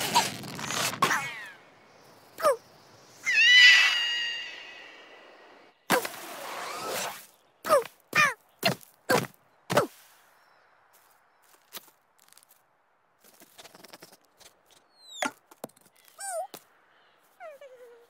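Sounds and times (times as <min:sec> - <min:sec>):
cartoon squirrel yelps: 0:03.2 - 0:04.7
squeaks and chitters: 0:13.3 - 0:16.6.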